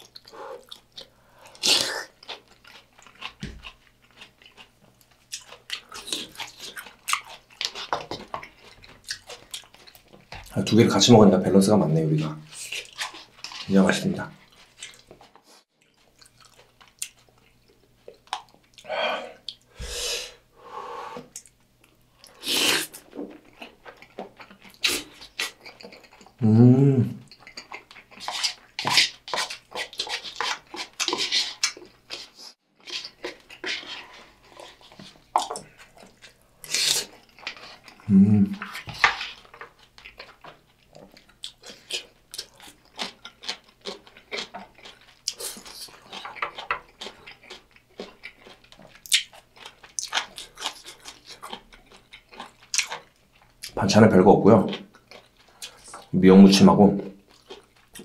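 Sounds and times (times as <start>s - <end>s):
close chewing with wet mouth noises: 0.0s - 11.0s, 12.2s - 19.7s, 21.3s - 26.4s, 27.2s - 53.9s, 54.6s - 58.0s
person humming: 26.4s - 27.2s, 38.1s - 38.6s
spoon scraping paper bowl: 28.2s - 31.6s.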